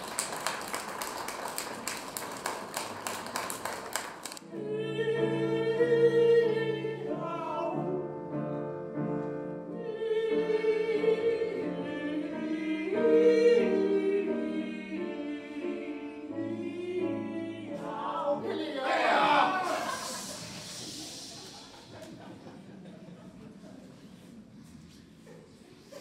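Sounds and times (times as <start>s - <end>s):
grand piano: 0.0s - 26.0s
women singing operatic style: 4.4s - 8.0s, 9.8s - 20.4s.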